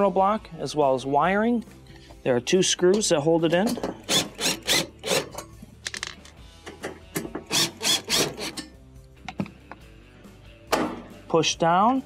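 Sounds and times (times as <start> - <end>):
cordless driver rasping: 4.0 - 5.4, 7.4 - 8.6.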